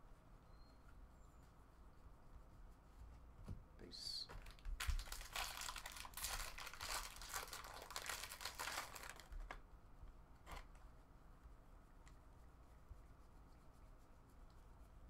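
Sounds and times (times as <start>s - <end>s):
foil wrapper crinkling: 4.4s - 9.6s.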